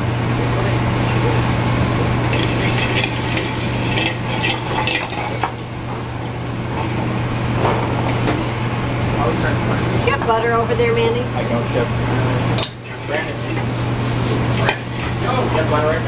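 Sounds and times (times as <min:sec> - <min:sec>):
vegetables sizzling in a pan: 0:00.0 - 0:09.6, 0:12.8 - 0:16.0
steady low hum: 0:00.0 - 0:16.0
metal pan clattering: 0:02.3 - 0:05.6.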